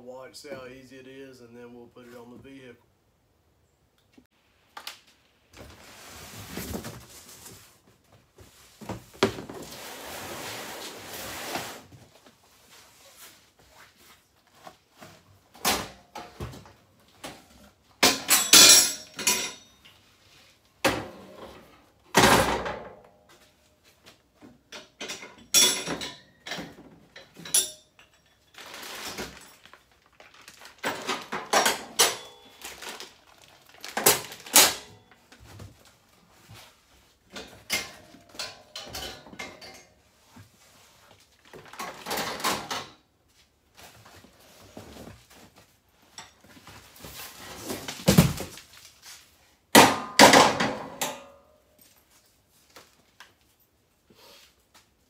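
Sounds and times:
cardboard and plastic bag rustling: 5.6s - 9.8s, 28.5s - 31.3s, 32.4s - 36.8s
metal clanks and rattles: 24.6s - 29.4s, 37.3s - 40.0s.

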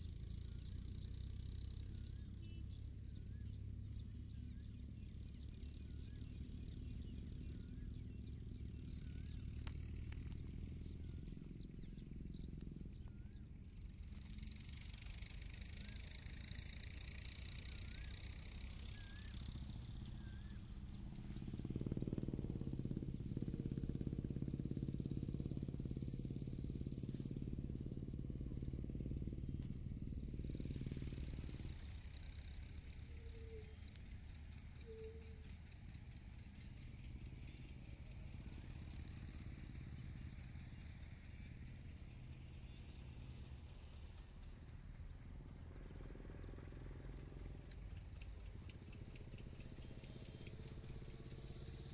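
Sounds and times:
faint bird chirps: 0.0s - 51.9s
steady low rumble: 1.9s - 38.6s.

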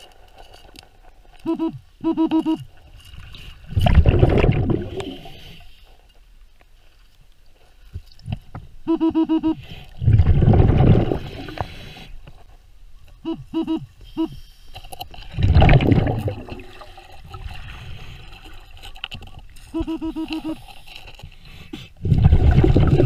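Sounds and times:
metal detector short beeps: 1.4s - 2.7s
rush of exhaled bubbles: 3.6s - 5.5s, 10.0s - 11.8s, 15.2s - 18.8s, 22.0s - 23.0s.

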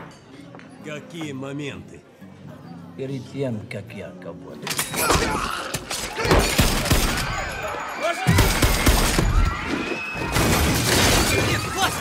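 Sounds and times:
glass shattering: 4.7s - 9.6s, 10.2s - 12.0s.

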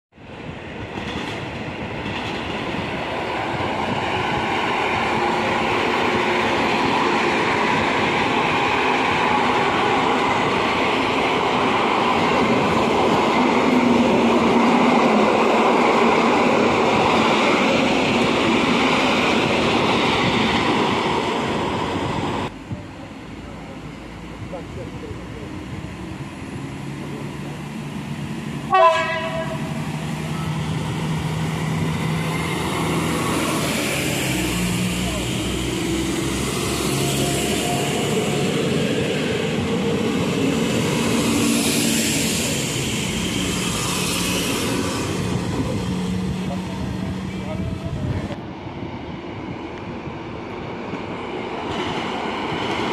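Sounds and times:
electric train passing close: 0.2s - 52.9s.

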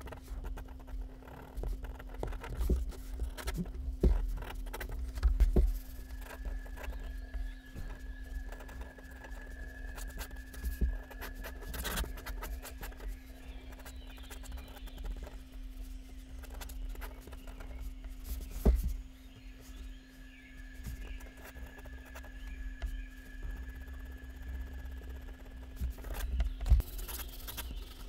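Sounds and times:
electrical hum: 0.0s - 28.0s
pen scratching on paper: 8.5s - 13.1s, 26.0s - 28.0s.

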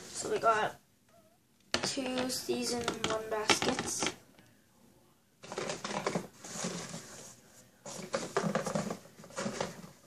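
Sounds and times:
rustling in a cardboard box: 5.4s - 10.0s.

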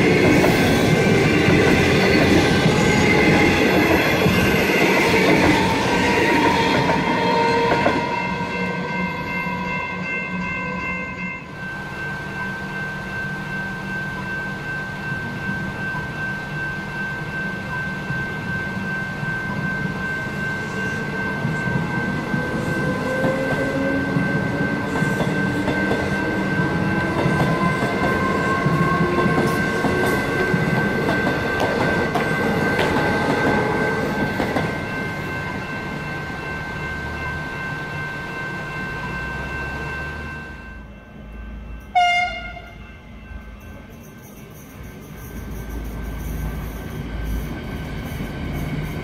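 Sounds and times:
level crossing bells ringing: 0.0s - 47.2s
train wheels clicking over rails: 21.4s - 35.6s.

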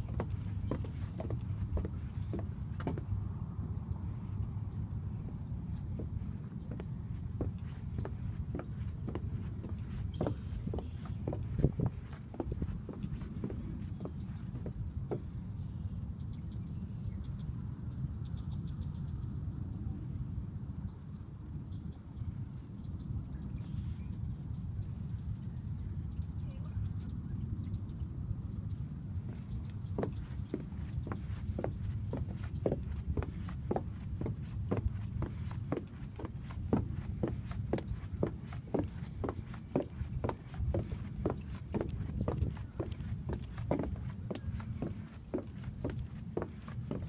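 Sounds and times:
footsteps on wet wooden boards: 0.0s - 3.2s, 5.3s - 15.4s, 29.3s - 47.0s
crickets chirping: 0.0s - 47.0s.

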